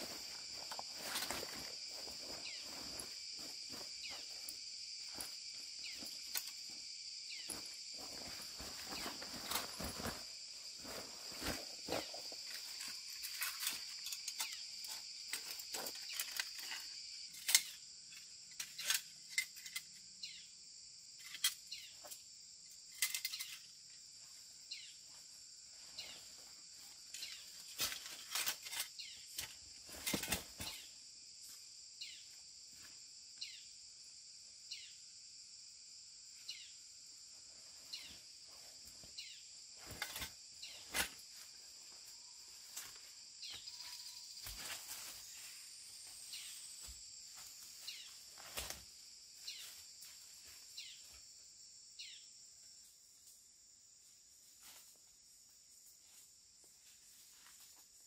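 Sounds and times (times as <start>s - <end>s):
insects droning: 0.0s - 58.0s.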